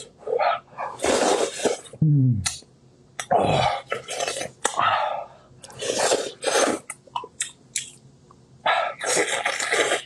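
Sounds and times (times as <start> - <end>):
wet slurping: 5.6 - 7.0, 8.9 - 10.0.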